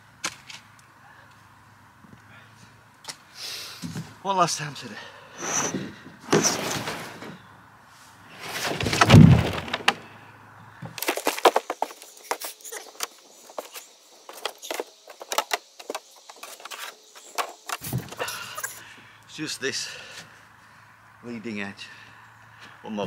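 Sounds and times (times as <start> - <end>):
rustling: 5.4 - 10.1
heavy thump: 8.5 - 10.0.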